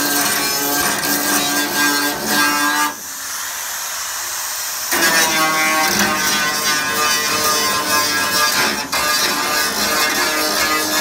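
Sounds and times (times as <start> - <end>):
steady hiss: 2.4 - 10.7.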